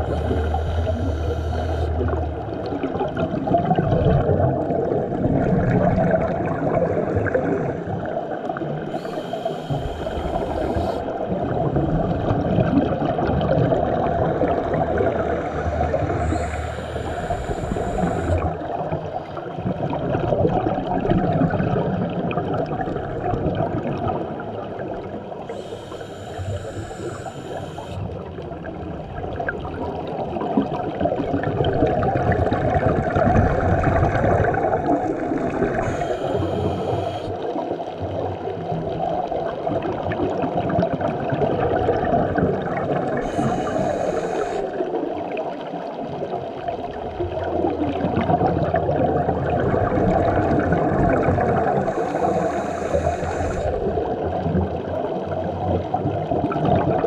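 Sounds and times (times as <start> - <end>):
scuba regulator breathing hiss: 0.0 - 2.1, 8.9 - 11.1, 15.2 - 18.5, 25.5 - 28.0, 35.7 - 37.4, 43.2 - 44.8, 51.7 - 54.0
underwater rush of water: 0.0 - 57.0.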